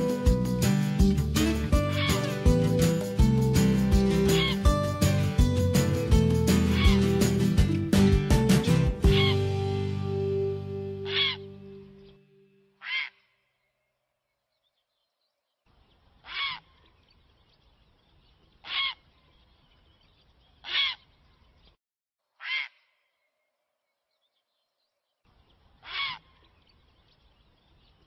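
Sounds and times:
heron harsh calls: 0:01.8 - 0:02.4, 0:04.3 - 0:04.7, 0:06.7 - 0:07.1, 0:11.0 - 0:11.5, 0:12.8 - 0:13.3, 0:16.2 - 0:16.7, 0:22.4 - 0:22.9, 0:25.8 - 0:26.3.

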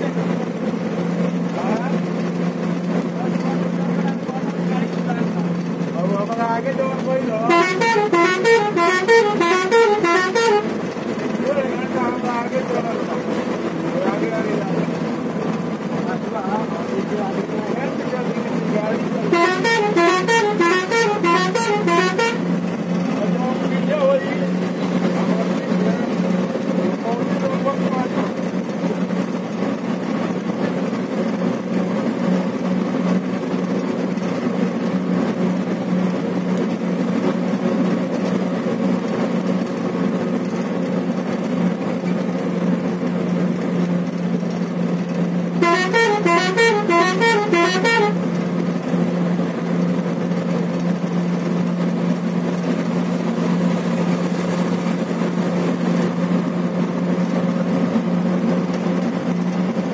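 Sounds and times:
vehicle engine and road noise: 0:00.0 - 0:59.9
warbling vehicle horn: 0:07.4 - 0:10.9, 0:19.3 - 0:22.6, 0:45.6 - 0:48.5.

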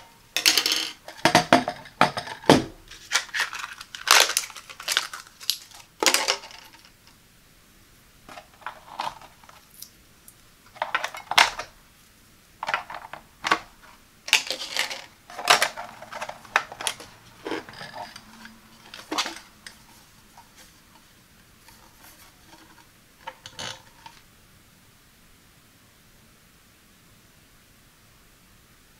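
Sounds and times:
batteries clicking into compartment: 0:00.5 - 0:06.9, 0:14.3 - 0:19.8.

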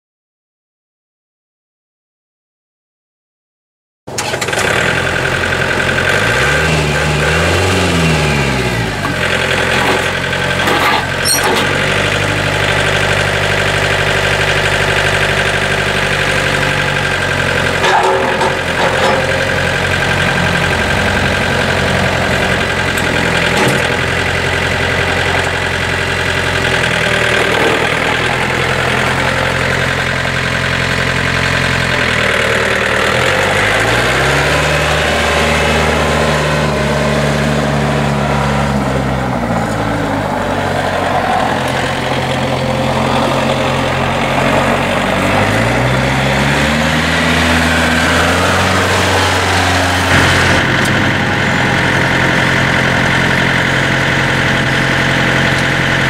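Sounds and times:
tractor diesel engine running: 0:04.1 - 0:56.0
tyres on gravel: 0:07.3 - 0:12.7, 0:16.0 - 0:30.6.

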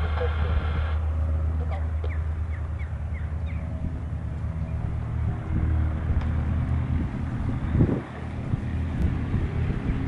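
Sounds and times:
biplane engine drone: 0:00.0 - 0:10.0.

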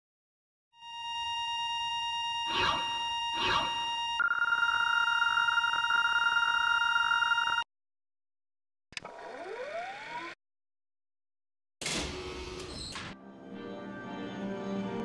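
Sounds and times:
electronic tone with overtones: 0:00.8 - 0:07.6
higher electronic tone: 0:01.2 - 0:07.6.

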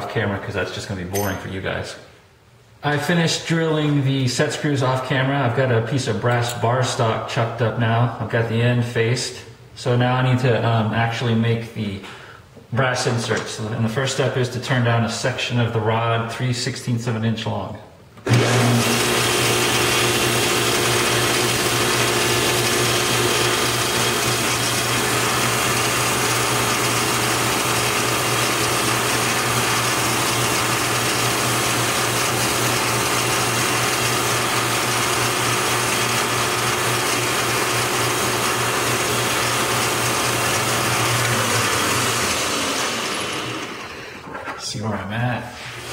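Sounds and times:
metal lathe humming: 0:18.3 - 0:44.2.

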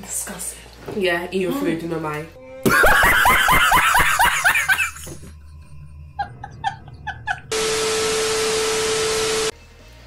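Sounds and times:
man laughing heartily: 0:02.6 - 0:07.5
tv static hiss: 0:07.6 - 0:09.5.

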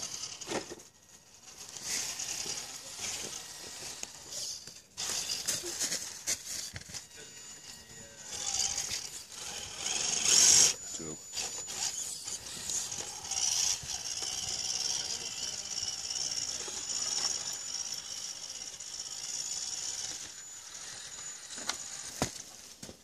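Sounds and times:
toy car motor whining: 0:00.0 - 0:23.0
dry leaves rustling: 0:05.0 - 0:06.8.

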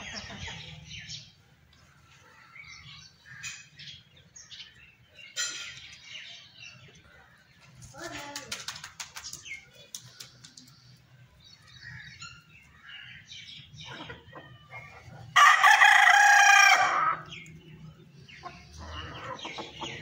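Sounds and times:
rooster crowing: 0:15.4 - 0:17.3.

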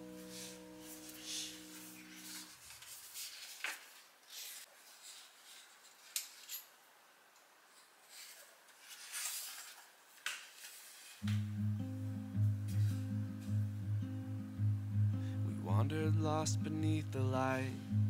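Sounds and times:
hands rustling paper: 0:00.1 - 0:06.6, 0:07.8 - 0:11.4
knit sleeves brushing: 0:00.1 - 0:06.6, 0:07.8 - 0:11.3, 0:12.7 - 0:13.6.

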